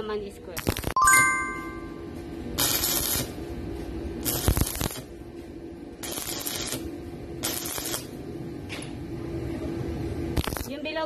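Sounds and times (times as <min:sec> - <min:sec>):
electric arc welding crackling: 0:00.5 - 0:01.0, 0:02.6 - 0:03.4, 0:04.2 - 0:05.2, 0:06.0 - 0:08.2, 0:10.3 - 0:11.0
steady low hum: 0:01.7 - 0:10.9.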